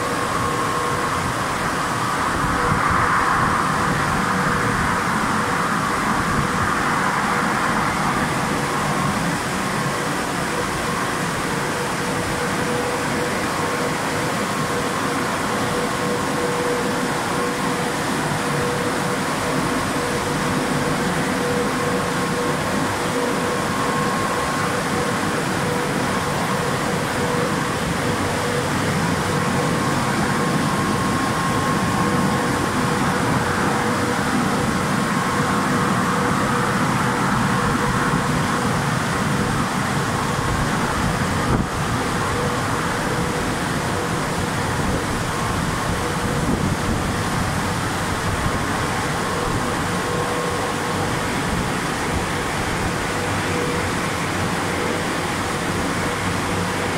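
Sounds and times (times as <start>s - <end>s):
constant machine hum: 0.0s - 56.9s.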